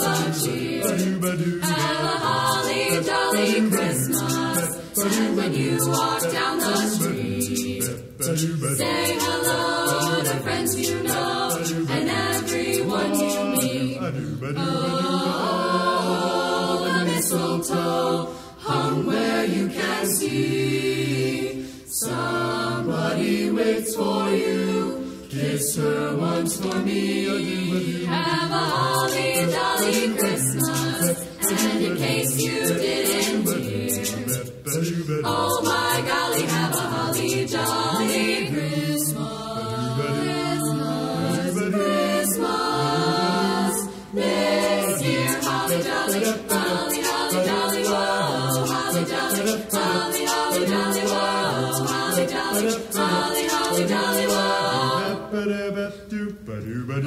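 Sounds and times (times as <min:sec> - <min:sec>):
sharp percussive strokes: 0:00.0 - 0:13.8, 0:28.4 - 0:38.6, 0:44.2 - 0:54.7
group singing a cappella: 0:00.0 - 0:57.0.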